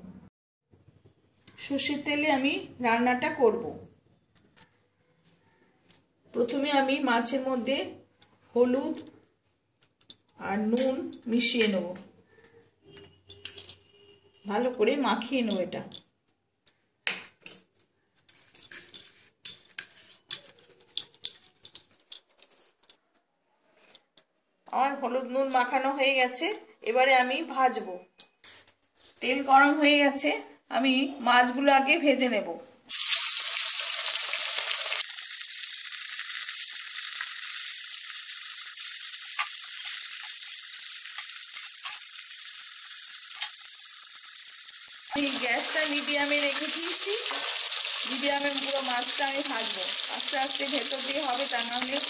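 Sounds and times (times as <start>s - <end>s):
metal clinking and scraping bowl: 13.2s - 13.9s, 39.3s - 45.2s
fish sizzling in oil: 32.9s - 52.0s.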